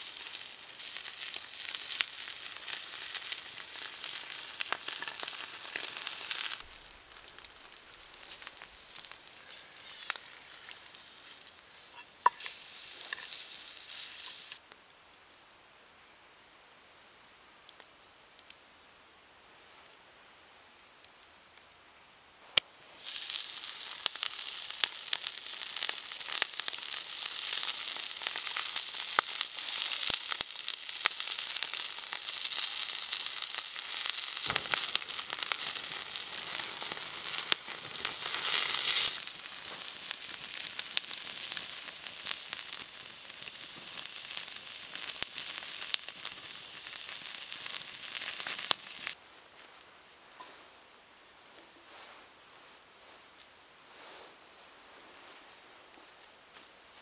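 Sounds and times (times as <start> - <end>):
fat crackling: 0.0 - 14.6, 22.6 - 49.2
meat sizzling in a hot pan: 0.0 - 14.6, 23.0 - 49.2.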